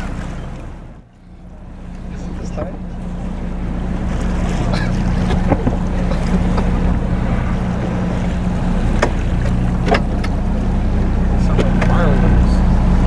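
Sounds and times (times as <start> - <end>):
boat engine humming: 0.0 - 13.0
water noise: 0.0 - 13.0
wind: 0.0 - 13.0.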